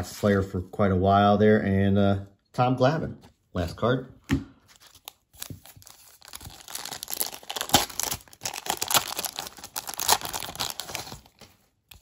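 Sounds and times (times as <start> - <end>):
plastic wrapper tearing and crinkling: 4.7 - 12.0.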